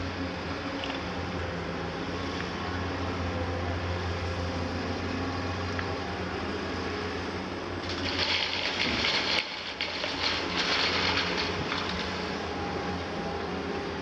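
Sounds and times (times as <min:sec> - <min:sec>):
excavator diesel engines humming: 0:00.0 - 0:14.0
sand pouring from bucket: 0:07.9 - 0:12.2.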